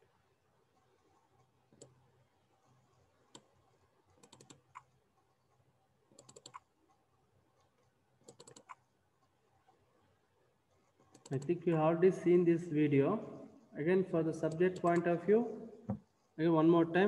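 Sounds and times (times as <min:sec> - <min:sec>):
keyboard typing: 0:00.7 - 0:07.0, 0:07.6 - 0:08.9, 0:10.7 - 0:11.6, 0:14.4 - 0:15.2.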